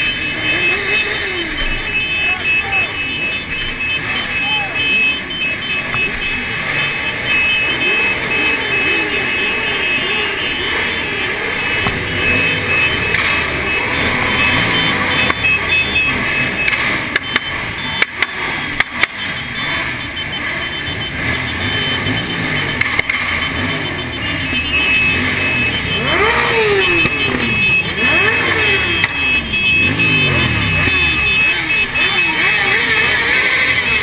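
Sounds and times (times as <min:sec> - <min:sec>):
motorcycle engines revving: 0:00.0 - 0:34.0.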